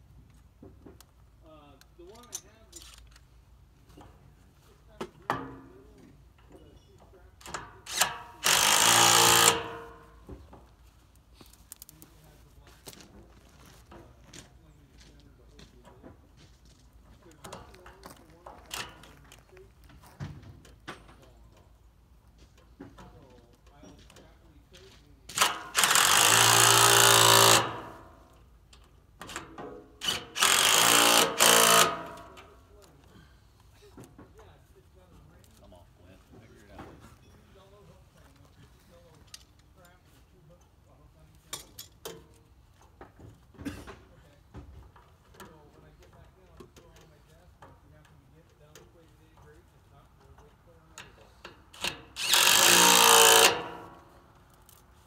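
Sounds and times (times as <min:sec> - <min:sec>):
power tool driving nuts: 0:07.4 - 0:10.2, 0:25.3 - 0:28.4, 0:29.2 - 0:32.5, 0:51.0 - 0:54.8.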